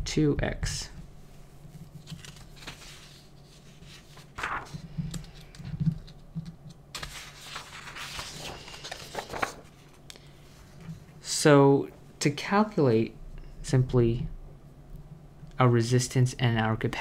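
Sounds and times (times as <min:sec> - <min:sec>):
low steady hum: 0:00.0 - 0:17.0
paper rustling and sliding: 0:01.8 - 0:10.0.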